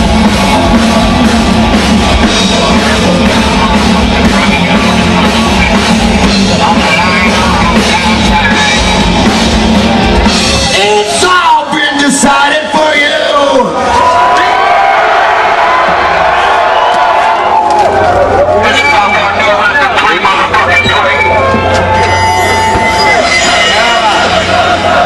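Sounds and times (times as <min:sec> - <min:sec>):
distorted electric guitar: 0:00.0 - 0:12.7, 0:17.7 - 0:25.0
drums: 0:00.0 - 0:25.0
live rock band: 0:00.0 - 0:25.0.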